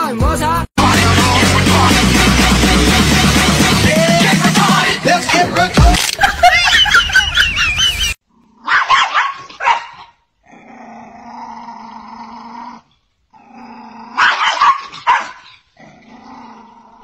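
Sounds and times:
small dog barking: 0:08.6 - 0:10.2, 0:14.2 - 0:15.6
dog growling: 0:10.4 - 0:14.4, 0:15.8 - 0:17.0.

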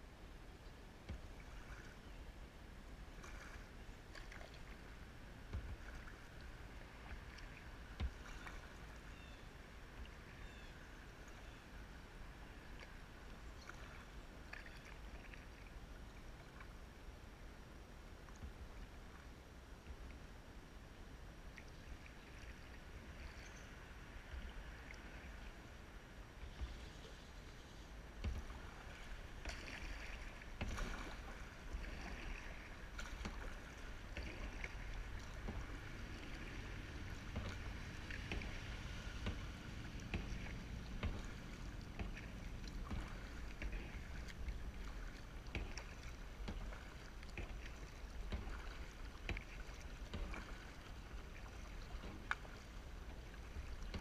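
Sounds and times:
paddle strokes splashing water: 0:00.2 - 0:54.0
paddle clicks: 0:03.2 - 0:09.0, 0:28.1 - 0:54.0.

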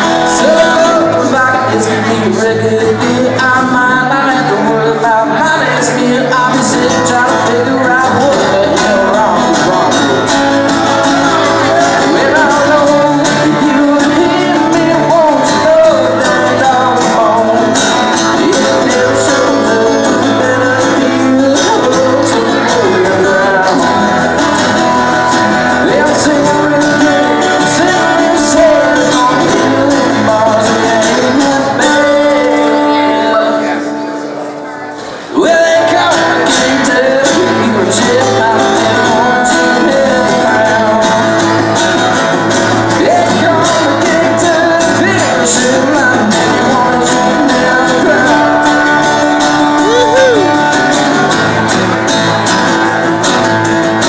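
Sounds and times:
acoustic guitars strummed: 0:00.0 - 0:54.0.

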